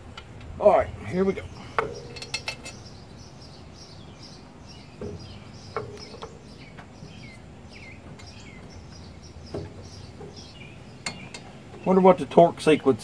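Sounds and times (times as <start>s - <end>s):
small birds chirping: 0.0s - 13.0s
light metallic clinks and knocks: 1.7s - 2.9s, 5.0s - 6.9s, 11.0s - 11.6s.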